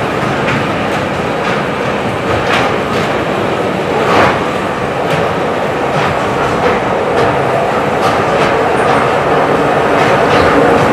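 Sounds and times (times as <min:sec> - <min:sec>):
wheels clicking over rail joints: 0:00.0 - 0:10.9
miniature train running noise: 0:05.0 - 0:10.9.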